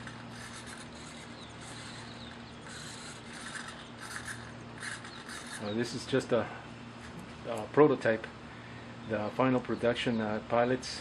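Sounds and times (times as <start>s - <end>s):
servos whirring: 0.0s - 6.4s
steady low hum: 0.0s - 11.0s.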